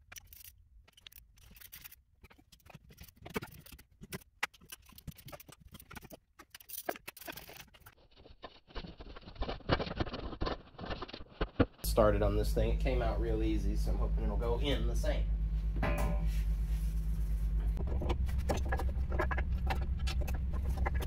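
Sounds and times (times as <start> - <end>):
metal parts clicking and scraping: 0.0 - 8.0.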